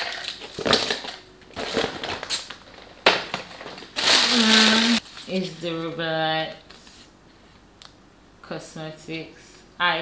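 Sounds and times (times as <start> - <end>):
plastic bag crinkling: 0.0 - 2.8, 3.4 - 5.4.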